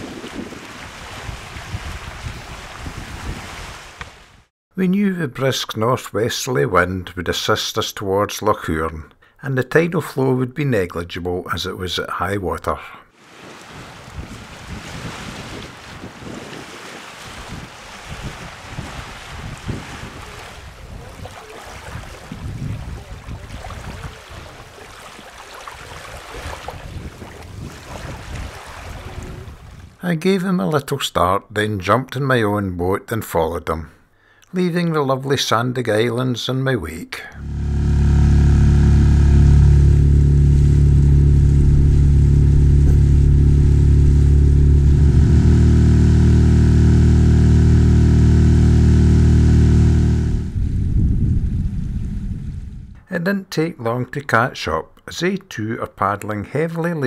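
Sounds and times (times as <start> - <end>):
wind buffeting microphone: 0.0 - 3.9, 14.0 - 24.8, 26.0 - 30.0, 50.4 - 53.0
small waves lapping: 0.0 - 4.5, 13.1 - 30.0
wind: 0.0 - 4.5, 11.8 - 46.4, 50.2 - 55.1
outboard motor running: 37.4 - 50.6.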